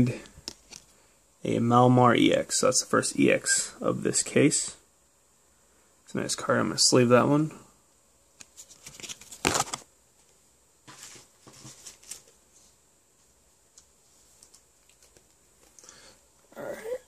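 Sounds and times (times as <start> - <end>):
cards rustling: 8.4 - 9.9, 10.9 - 12.4, 13.8 - 15.9.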